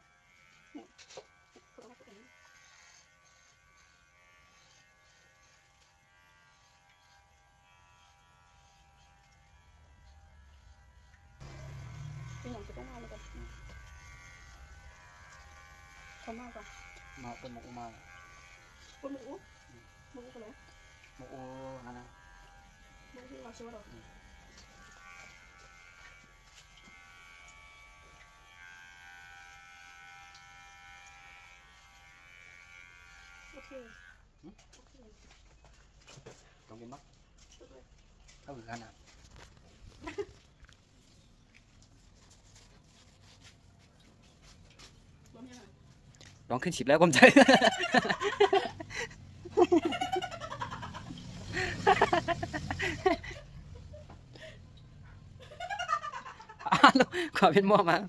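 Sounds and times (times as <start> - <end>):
electric hair clippers buzzing: 0.0 - 34.3, 47.0 - 53.4, 55.6 - 58.0.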